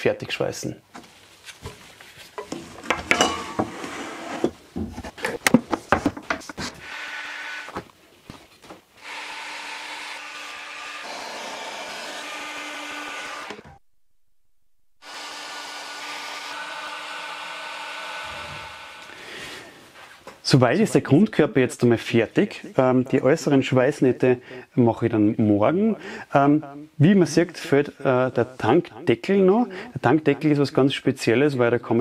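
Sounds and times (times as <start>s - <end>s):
knocking and clattering: 2.4s - 3.8s
hot-air welding gun blower: 15.0s - 19.2s.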